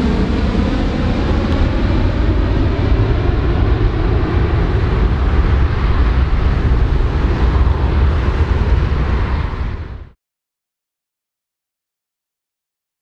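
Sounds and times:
jet engines deep rumble: 0.0s - 10.2s.

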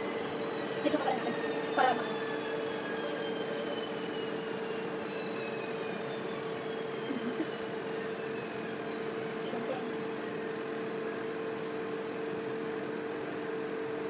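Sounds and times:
high whines falling in pitch: 0.0s - 12.5s
machine hum: 0.0s - 14.0s.

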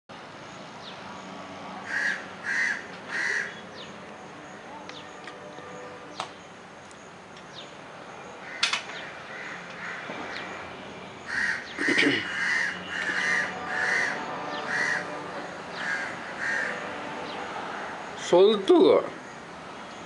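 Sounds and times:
crow cawing: 1.8s - 3.6s, 8.4s - 10.5s, 11.3s - 18.1s
sharp clicks: 8.6s - 9.0s.

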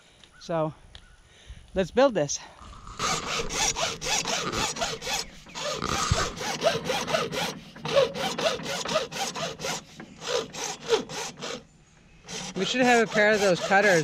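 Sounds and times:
hacksaw cutting plastic pipe: 2.9s - 11.6s, 12.3s - 14.0s.

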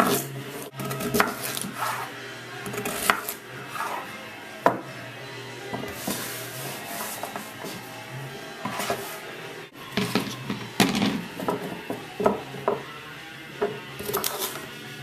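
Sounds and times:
music: 0.0s - 15.0s
knife chopping carrots on wood: 0.8s - 1.7s, 13.6s - 14.5s.

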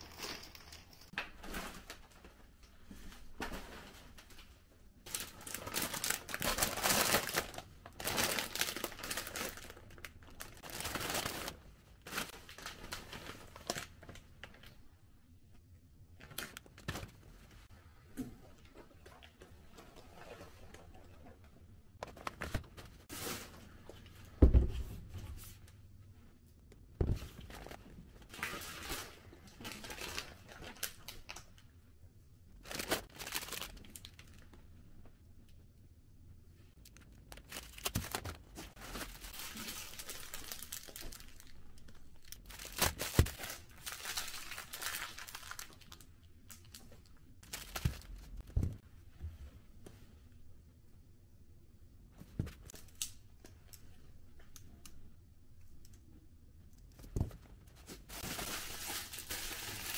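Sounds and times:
plastic packaging crinkling: 5.1s - 14.7s, 32.6s - 34.4s, 36.9s - 48.4s, 58.1s - 59.9s.

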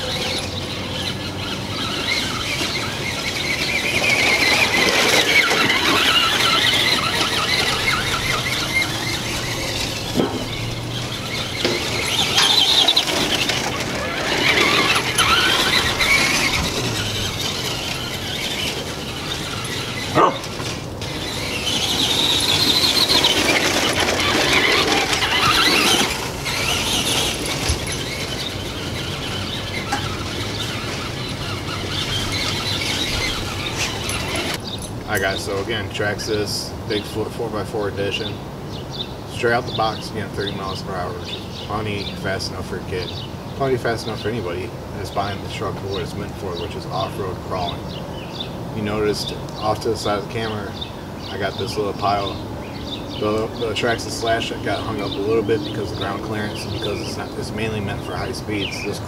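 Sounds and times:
toy truck electric motor whining: 0.0s - 35.4s.

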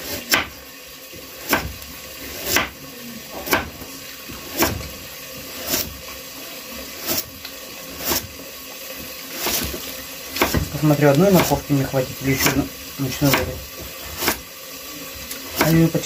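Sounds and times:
knife chopping on wooden board: 0.3s - 0.6s, 1.4s - 1.8s, 2.4s - 2.8s, 3.4s - 3.9s, 4.5s - 5.0s, 9.4s - 10.8s, 11.4s - 11.6s, 12.4s - 12.7s, 13.3s - 14.4s.

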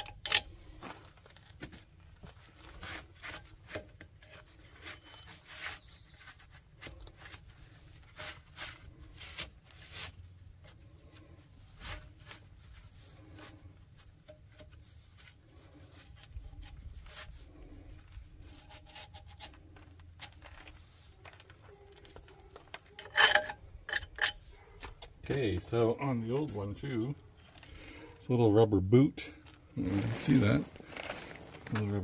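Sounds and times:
light rubbing: 2.7s - 24.7s.

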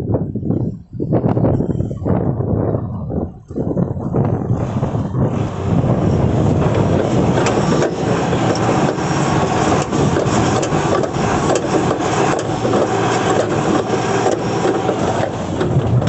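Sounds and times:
diesel engine running: 4.0s - 16.0s.

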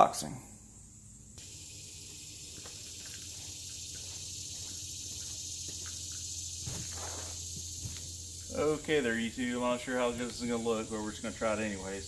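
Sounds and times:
high-pitched hiss: 0.0s - 12.0s
faint footsteps: 2.5s - 9.0s.

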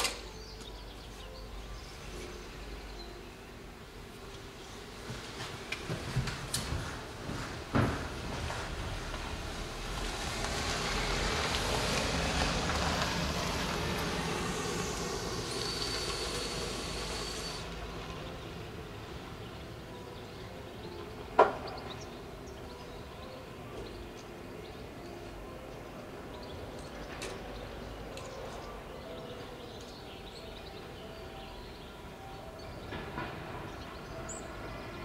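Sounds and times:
vehicle passing by: 8.5s - 18.2s
thin high whine: 13.6s - 17.8s.

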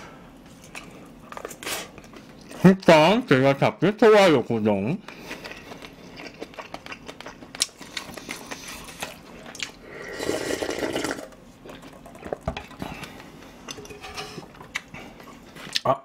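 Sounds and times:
slurping broth from a pot: 9.9s - 11.3s.

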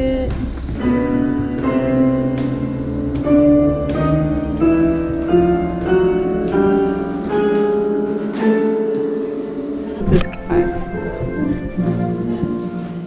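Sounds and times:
piano-like tones rising in pitch: 0.0s - 13.0s.

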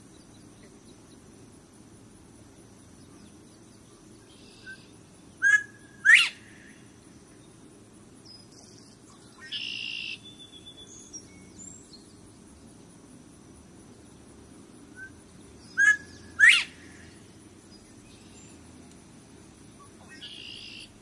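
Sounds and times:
bird whistle rising in pitch: 4.6s - 6.6s, 9.4s - 10.9s, 15.0s - 16.8s, 20.1s - 20.9s.

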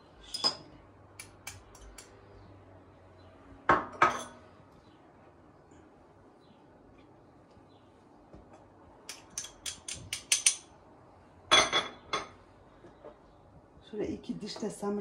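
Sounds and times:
dishes and utensils clinking: 0.2s - 0.8s, 3.8s - 4.4s, 11.5s - 12.4s.

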